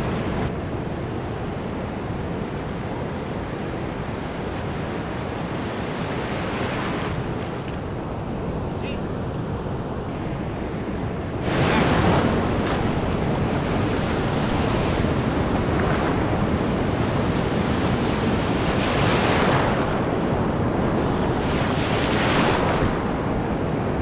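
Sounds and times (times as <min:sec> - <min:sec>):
wind buffeting microphone: 0:06.7 - 0:24.0
surf breaking on shore: 0:10.1 - 0:24.0.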